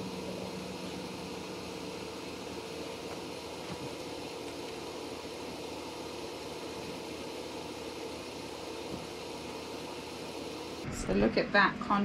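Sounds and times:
mechanical hum: 0.0 - 12.0.

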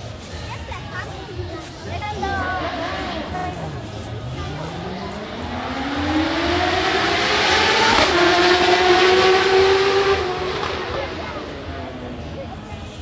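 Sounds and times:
racing motorcycle engine accelerating: 2.4 - 12.4.

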